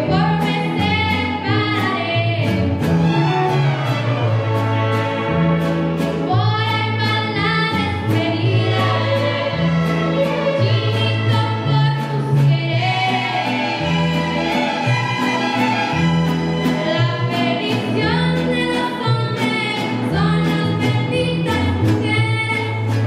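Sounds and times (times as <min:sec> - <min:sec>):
girl singing: 0:00.0 - 0:02.6, 0:06.3 - 0:09.6, 0:10.6 - 0:13.6, 0:16.9 - 0:22.9
strummed guitar rhythm: 0:00.0 - 0:23.0
violins: 0:00.0 - 0:23.0.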